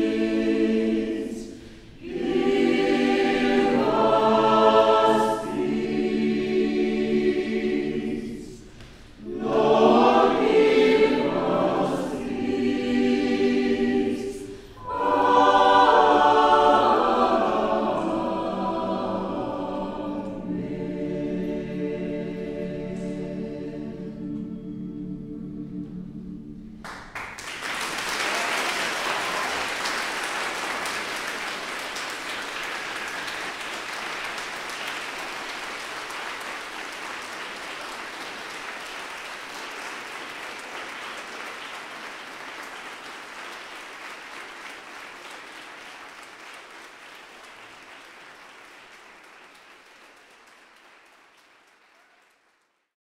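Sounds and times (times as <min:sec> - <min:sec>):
audience applauding: 0:26.8 - 0:52.9.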